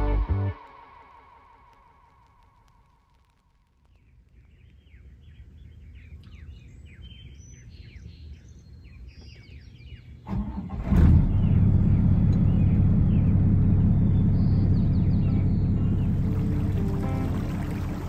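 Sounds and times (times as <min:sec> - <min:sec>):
faint low rumble: 0:00.0 - 0:07.0, 0:10.8 - 0:18.0
small birds chirping: 0:03.6 - 0:10.3, 0:11.2 - 0:18.0
diesel engine starting and idling: 0:10.3 - 0:18.0.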